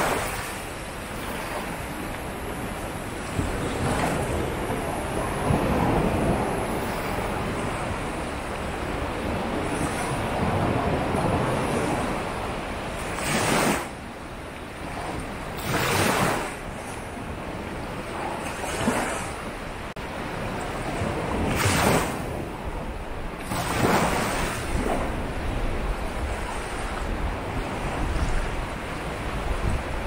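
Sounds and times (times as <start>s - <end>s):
waves breaking on beach: 0.0s - 30.0s.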